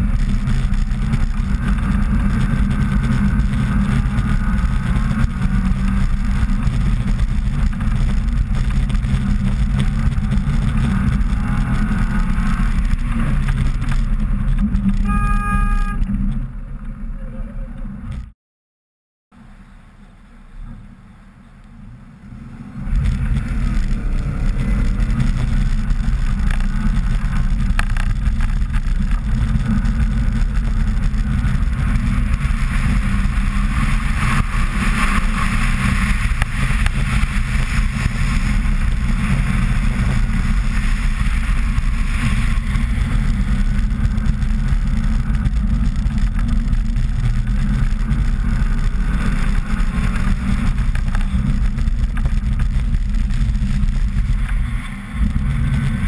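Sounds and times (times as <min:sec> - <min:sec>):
car engine running under load: 0:00.0 - 0:18.3, 0:19.4 - 0:56.0
studded tyres hissing on ice: 0:22.4 - 0:56.0.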